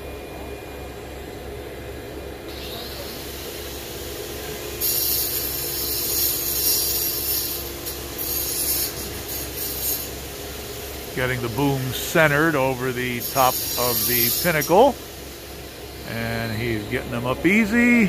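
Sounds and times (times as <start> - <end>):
crane engine droning: 10.2 - 18.0
scratchy rubbing hiss: 11.2 - 14.9.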